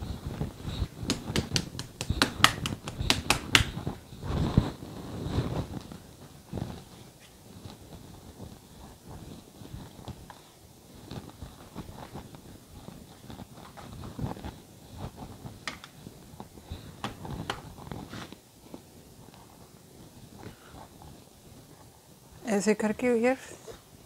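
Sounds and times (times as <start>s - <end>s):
hands patting and rubbing dough: 0.0s - 22.0s
sharp taps and clicks: 1.0s - 3.8s.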